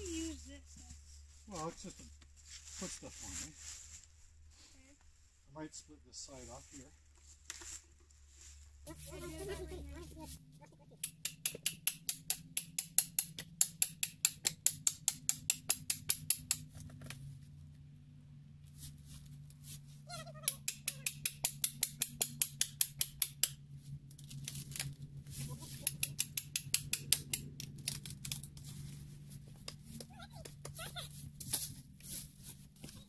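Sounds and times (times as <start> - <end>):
hand saw cutting wood: 20.5 - 33.0.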